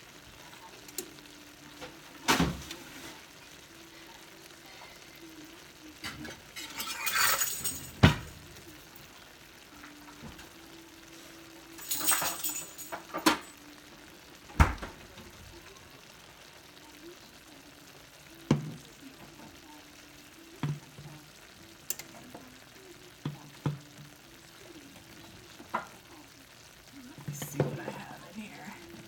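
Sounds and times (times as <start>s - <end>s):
stir-fry sizzling: 0.0s - 29.0s
kitchen knocks and clinks: 6.0s - 8.4s, 11.8s - 13.5s.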